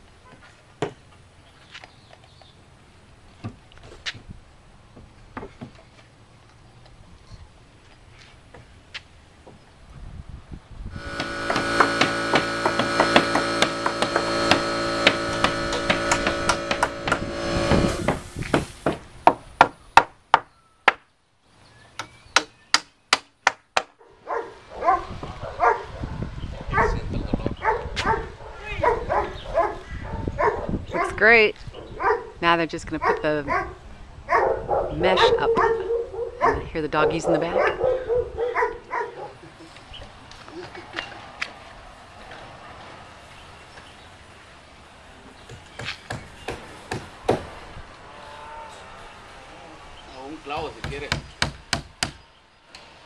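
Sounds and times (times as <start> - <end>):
dogs barking and yelping: 24.0 - 27.0, 27.6 - 31.2, 31.8 - 32.4, 33.0 - 39.5
knocks on wooden fence boards: 45.5 - 47.5, 50.6 - 52.2
hammer driving nails into wood: 50.8 - 52.2.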